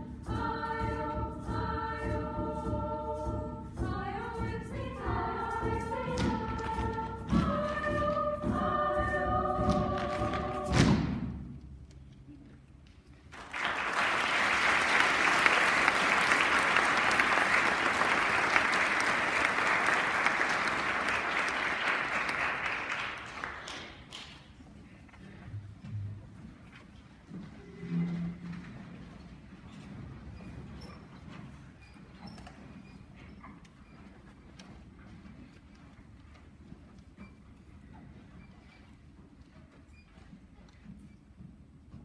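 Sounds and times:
choir singing: 0:00.0 - 0:11.4
drum beats: 0:00.0 - 0:11.6
audience applauding: 0:13.3 - 0:24.4.

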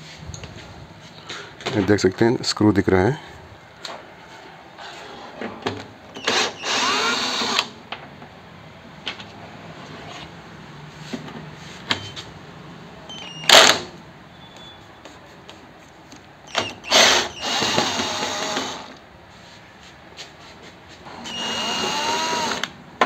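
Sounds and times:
electric drill driver: 0:06.2 - 0:07.7, 0:13.3 - 0:13.8, 0:16.5 - 0:19.0, 0:21.1 - 0:22.8.

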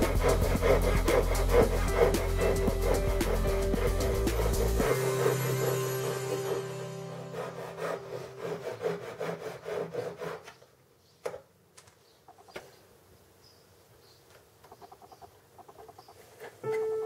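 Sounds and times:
hand saw cutting wood: 0:00.0 - 0:10.7.

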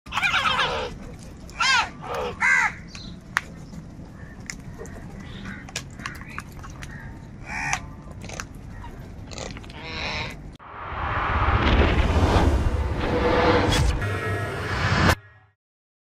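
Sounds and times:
crows cawing: 0:01.6 - 0:02.9, 0:04.2 - 0:10.4.

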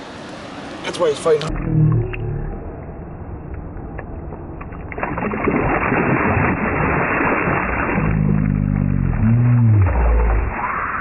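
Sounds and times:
fish splashing: 0:04.6 - 0:10.9.

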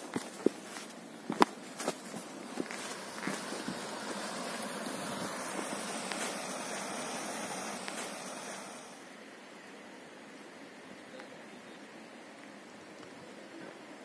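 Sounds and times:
footsteps on rock: 0:00.0 - 0:04.3
rushing outdoor background noise: 0:00.0 - 0:14.0.

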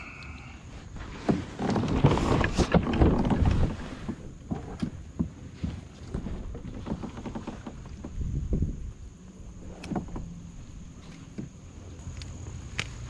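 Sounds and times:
fishing gear clicks and taps: 0:11.0 - 0:13.0.

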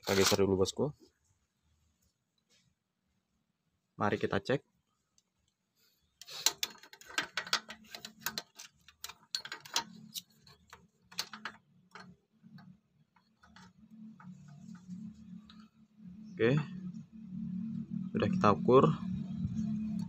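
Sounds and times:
caliper clicking and scraping on metal: 0:06.2 - 0:15.8
faint low hum: 0:08.0 - 0:20.0.

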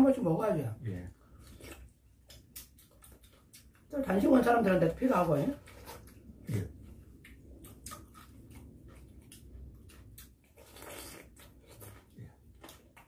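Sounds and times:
people chewing: 0:01.0 - 0:13.0.

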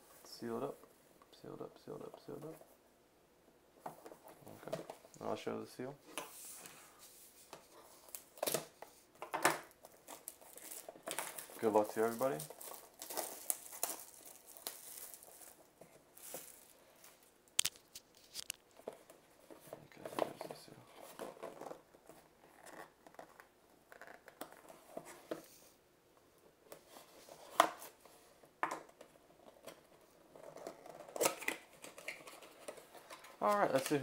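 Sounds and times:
plastic wrap tearing and crinkling: 0:09.6 - 0:18.7.

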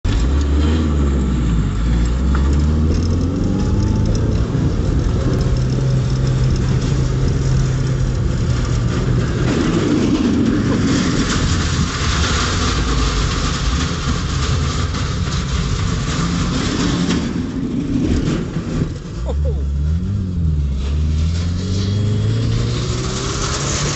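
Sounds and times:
broad rush of noise: 0:00.0 - 0:23.9
car engine revving: 0:00.1 - 0:23.9.

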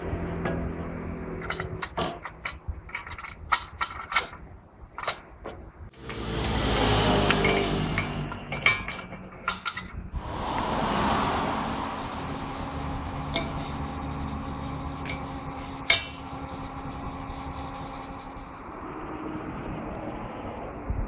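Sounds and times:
steady hum: 0:05.8 - 0:21.0.

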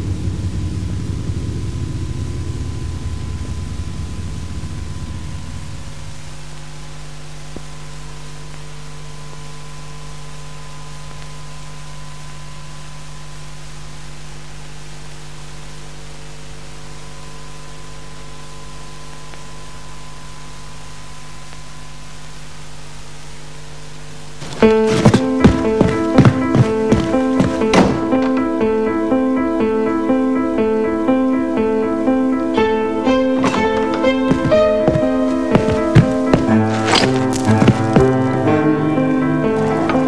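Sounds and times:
soundtrack drone with held tones: 0:00.0 - 0:22.8.

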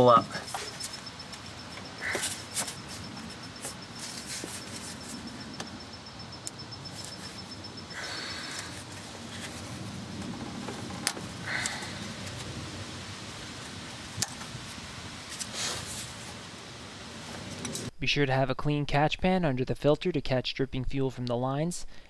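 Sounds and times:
gloves rustling: 0:00.4 - 0:05.7, 0:06.8 - 0:12.6.

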